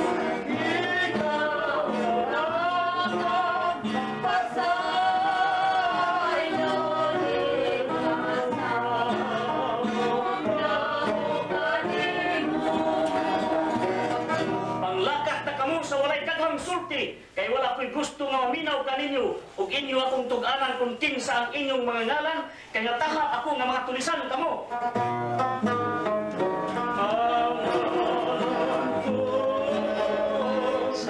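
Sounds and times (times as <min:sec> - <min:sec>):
plucked guitar and banjo: 0:00.0 - 0:15.6, 0:24.6 - 0:31.0
voices singing a christmas song: 0:00.0 - 0:15.9, 0:26.8 - 0:31.0.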